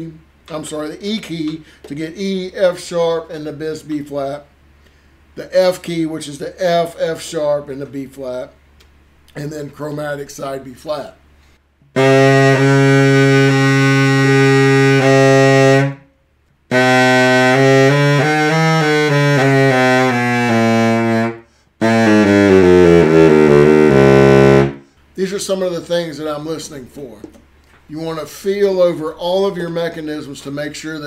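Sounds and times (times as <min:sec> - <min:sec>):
baritone saxophone playing: 0:11.9 - 0:16.1, 0:16.7 - 0:24.9.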